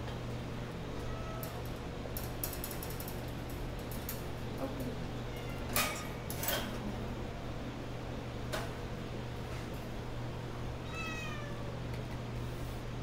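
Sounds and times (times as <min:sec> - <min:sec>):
room hum: 0:00.0 - 0:13.0
wire cage clinking and rattling: 0:01.4 - 0:04.3.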